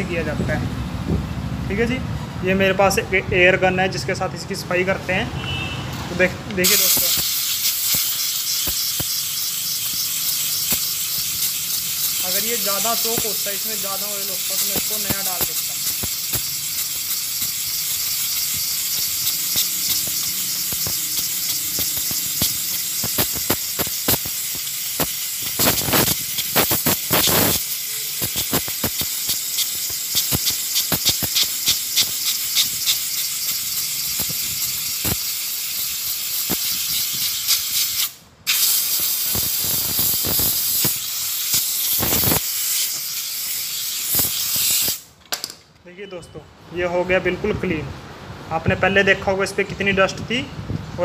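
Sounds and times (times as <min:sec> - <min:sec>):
compressed air blow gun hissing: 0:06.6 - 0:45.1.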